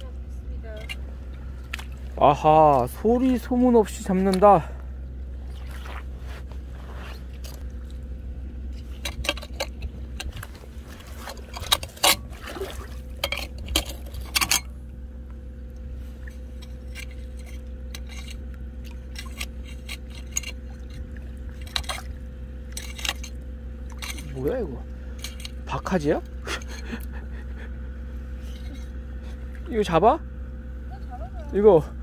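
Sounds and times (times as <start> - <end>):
steady low hum: 0.0 - 32.0
small water splashes: 5.4 - 6.1, 11.9 - 13.2
scrapes and clinks of stones: 16.6 - 22.1, 22.7 - 23.4.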